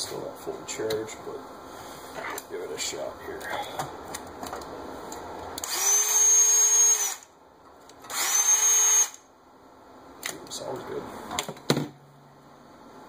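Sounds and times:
cordless drill whining: 5.6s - 7.3s, 8.1s - 9.2s.

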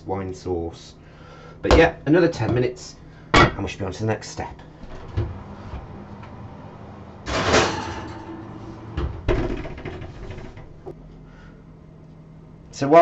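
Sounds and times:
oven door shutting: 4.8s - 10.9s
pot scraping on oven shelf: 7.2s - 10.9s.

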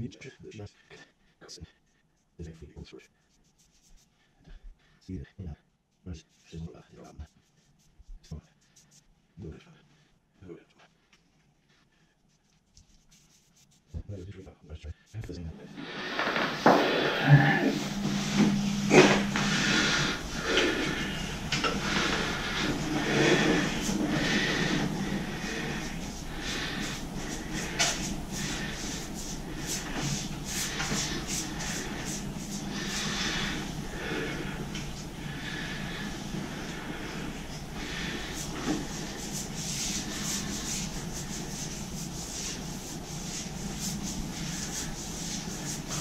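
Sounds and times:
paintbrush scraping paint can: 12.3s - 14.1s, 15.8s - 34.6s, 35.9s - 46.0s.

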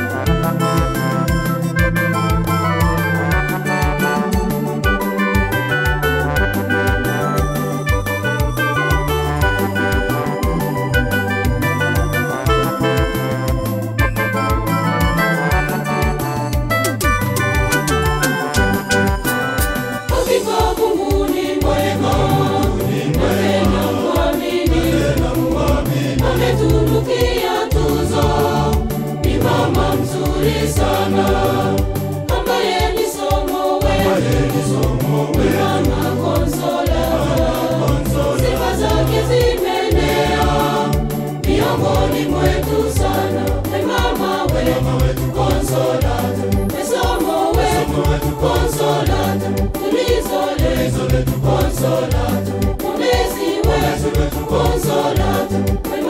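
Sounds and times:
choir singing gospel song: 0.0s - 13.9s, 19.8s - 56.0s
instrumental backing: 0.0s - 56.0s
repeating bass line: 5.4s - 32.8s, 33.8s - 49.6s.

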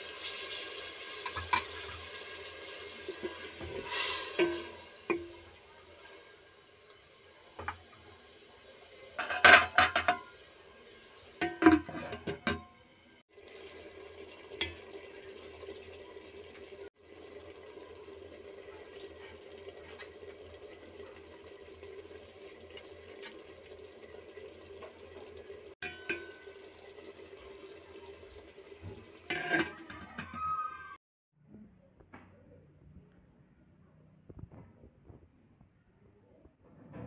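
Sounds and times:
utensil scraping a metal pot: 0.2s - 5.4s, 9.2s - 10.4s, 11.2s - 12.6s, 29.2s - 30.7s.

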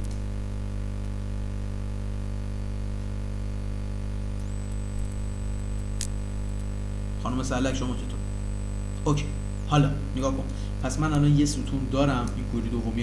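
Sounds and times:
click: 0.0s - 0.2s, 4.4s - 6.7s
electrical hum: 0.0s - 13.0s
faint high-pitched whine: 0.0s - 13.0s.

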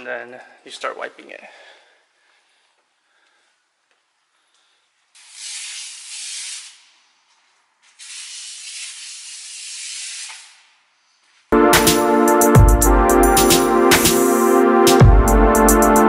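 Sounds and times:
garden sprayer hissing: 5.2s - 7.0s, 7.9s - 10.8s
music: 11.6s - 16.0s.

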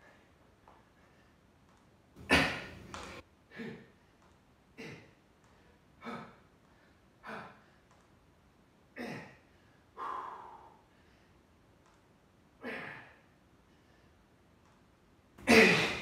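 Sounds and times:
man exhaling forcefully: 10.0s - 10.8s.

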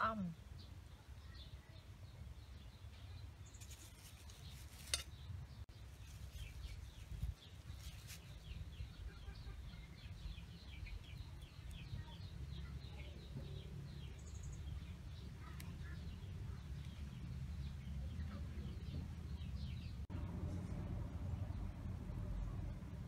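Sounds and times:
small birds chirping: 0.0s - 20.6s
leaves snapping and rustling: 3.6s - 5.2s
steady low rumble: 13.8s - 23.0s.

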